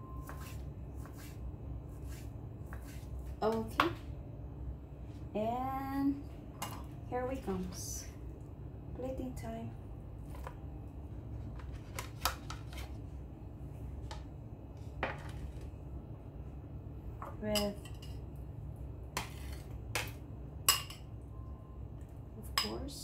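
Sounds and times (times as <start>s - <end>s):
low hum: 0.0s - 23.0s
dishes and spoon clinking: 19.2s - 21.1s.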